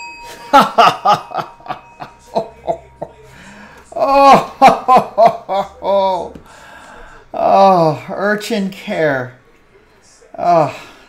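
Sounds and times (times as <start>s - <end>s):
man laughing: 0.3s - 6.4s.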